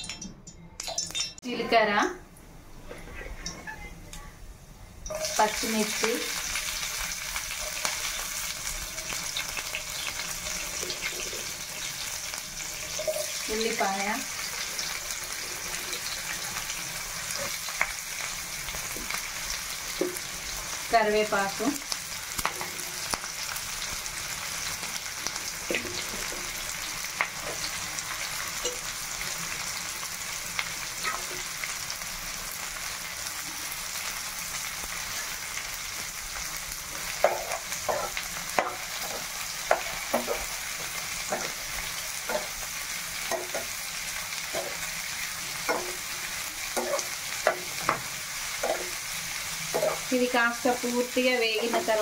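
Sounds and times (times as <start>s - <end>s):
onions sizzling in hot oil: 5.0s - 52.0s
metal spatula scraping pan: 49.7s - 50.1s.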